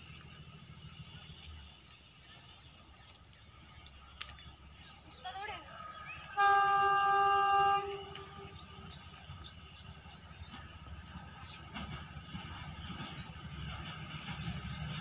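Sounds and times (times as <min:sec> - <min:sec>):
birds chirping: 0:00.0 - 0:15.0
locomotive low rumble: 0:00.0 - 0:15.0
locomotive horn: 0:06.3 - 0:08.9.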